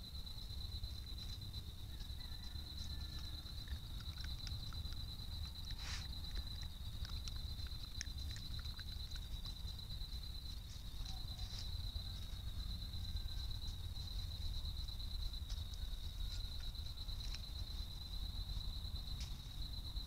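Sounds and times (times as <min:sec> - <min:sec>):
rustles in dry leaves: 0:10.5 - 0:18.5.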